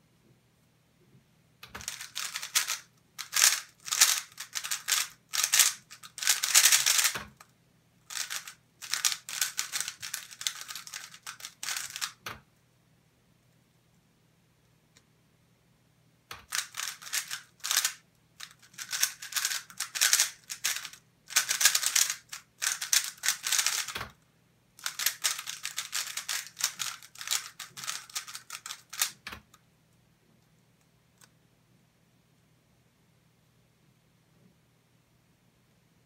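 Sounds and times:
rapid plastic clicking of puzzle cube: 1.6 - 7.5, 8.1 - 12.4, 16.3 - 24.2, 24.8 - 29.6.

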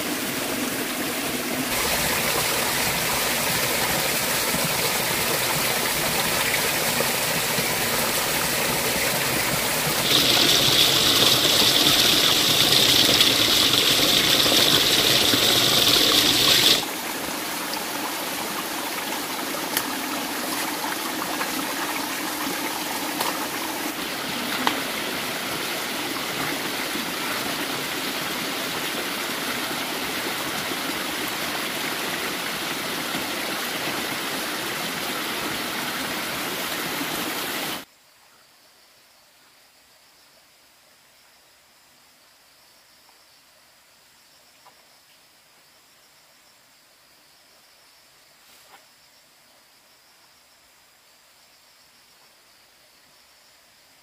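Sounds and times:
stream water rushing: 0.0 - 37.9
high hiss: 1.7 - 19.1.

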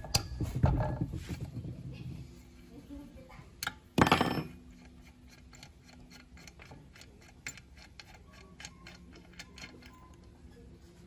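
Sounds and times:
faint ball bearing ticking: 4.8 - 10.3.

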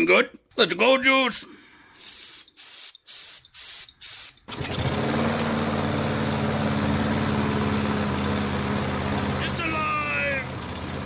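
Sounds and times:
aerosol can spraying: 2.0 - 4.5
mower engine running: 4.5 - 11.0.

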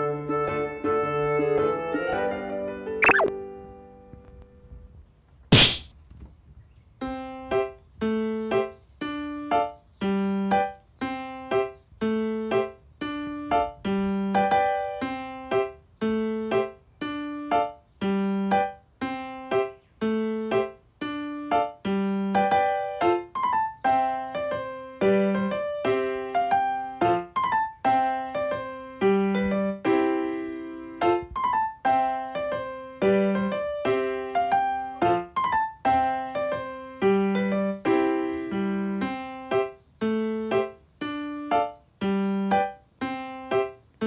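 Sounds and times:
piano-like keyboard tune: 0.0 - 4.7, 7.0 - 44.0
sharp knock: 5.5 - 5.9.

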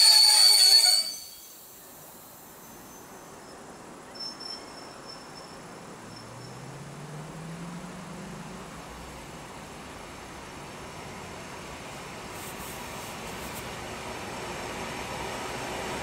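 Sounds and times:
faint crickets chirping: 1.0 - 7.4
electric train hum rising: 12.9 - 16.0.

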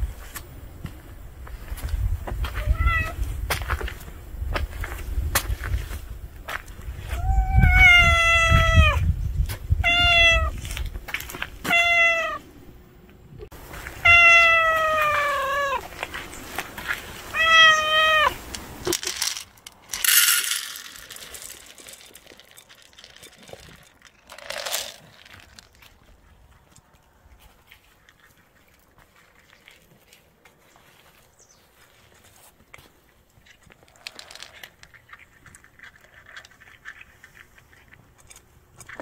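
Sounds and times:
cat meowing: 2.6 - 3.2, 7.1 - 9.0, 9.8 - 10.6, 11.6 - 12.4, 14.0 - 15.8, 17.3 - 18.4
kibble poured into bowl: 18.9 - 25.7.

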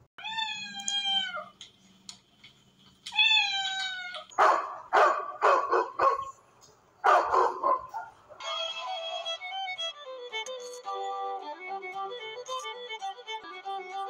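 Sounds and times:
cat meowing: 0.2 - 1.6, 3.1 - 4.4.

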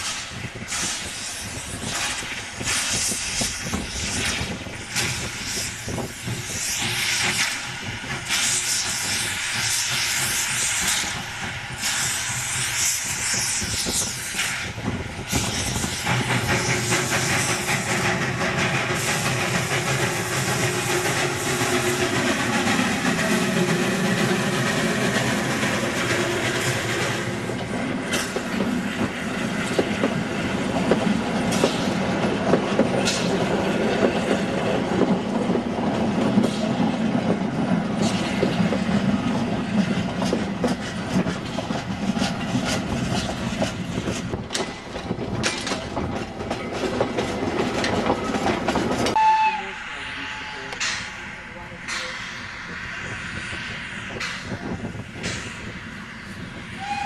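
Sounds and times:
steam hissing: 0.0 - 57.0
steam locomotive pulling away: 0.0 - 57.0
train coaches rumbling past: 0.0 - 57.0
wheels clicking over rail joints: 27.5 - 49.2.

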